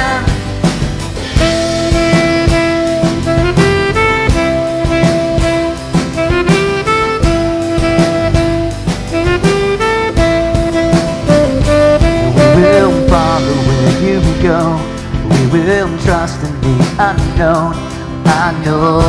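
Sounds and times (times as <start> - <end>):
person singing with vibrato: 0.0 - 0.5, 12.2 - 19.0
acoustic guitar: 0.0 - 19.0
drums: 0.0 - 19.0
saxophone long held notes: 1.3 - 15.1.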